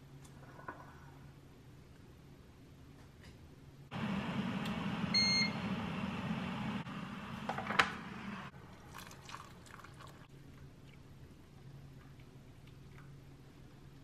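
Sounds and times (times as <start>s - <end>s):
electric kettle boiling: 3.9s - 10.1s
short electronic beep: 5.1s - 5.6s
hot water pouring into mug: 8.8s - 10.3s.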